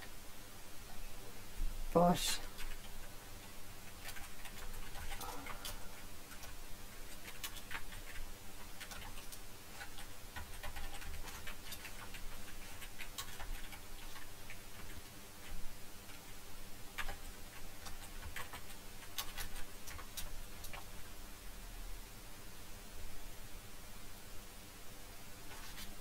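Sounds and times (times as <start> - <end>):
computer keyboard typing: 3.9 - 16.2, 17.0 - 20.9.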